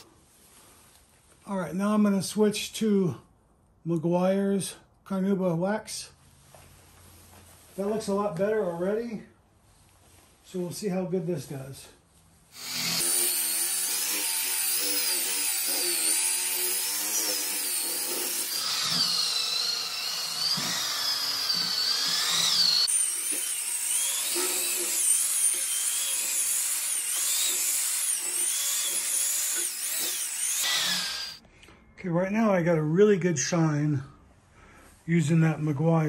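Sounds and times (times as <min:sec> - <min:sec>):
rotary polisher motor whine: 0:12.6 - 0:31.4.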